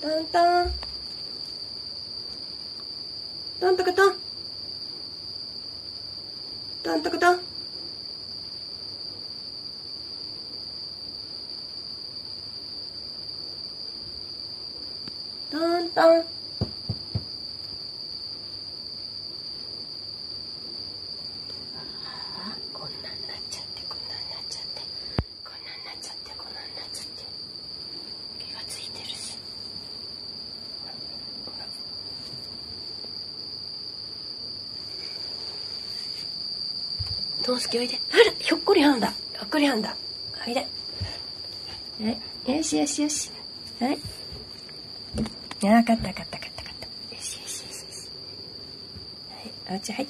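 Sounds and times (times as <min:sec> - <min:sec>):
crickets chirring: 0:00.0 - 0:50.0
sharp knocks: 0:16.6 - 0:17.3.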